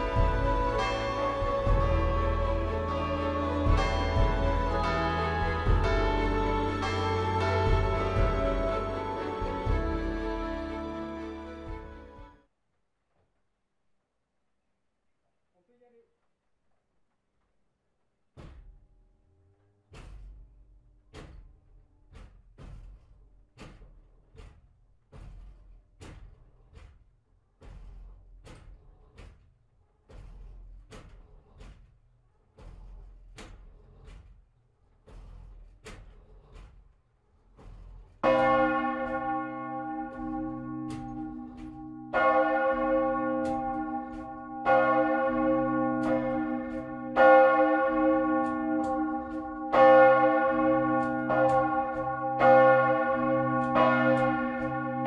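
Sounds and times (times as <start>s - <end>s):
large church bell ringing: 0.0s - 11.3s, 38.2s - 55.0s
low hum: 0.0s - 12.4s
bell swing knocks: 38.2s - 55.0s.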